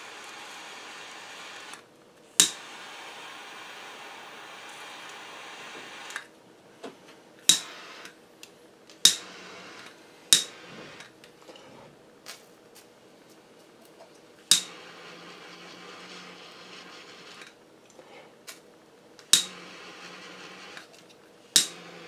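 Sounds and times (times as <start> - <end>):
torch lighter hissing: 0.0 - 6.3, 7.4 - 8.2, 9.0 - 11.1, 14.5 - 17.6, 19.2 - 20.9.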